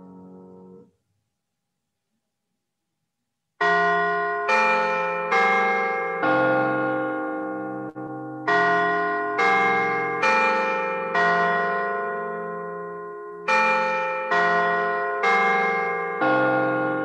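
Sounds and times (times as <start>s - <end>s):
church bell strokes: 3.6s - 17.0s.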